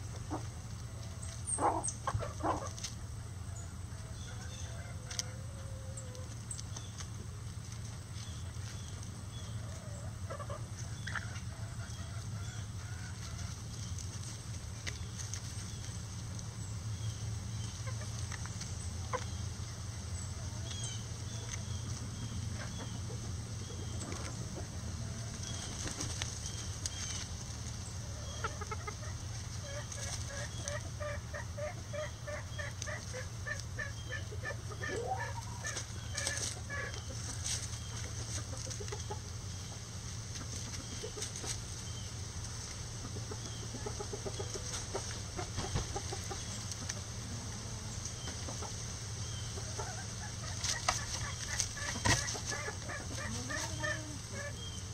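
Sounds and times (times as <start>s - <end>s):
chickens clucking: 0.0s - 54.9s
steady low hum: 0.0s - 54.9s.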